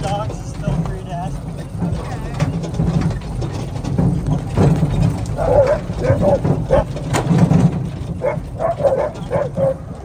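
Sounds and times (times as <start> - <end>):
sled rumbling on gravel: 0.0 - 10.0
dogs barking and yipping: 4.9 - 10.0.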